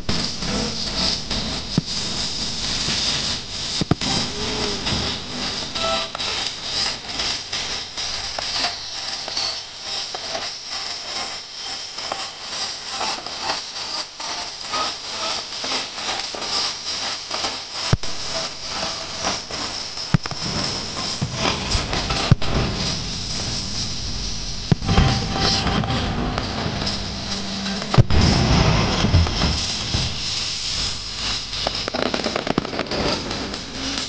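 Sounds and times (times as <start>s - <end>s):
sharp firework bangs: 0.0s - 7.9s, 19.3s - 34.0s
fireworks crackling: 0.0s - 34.0s.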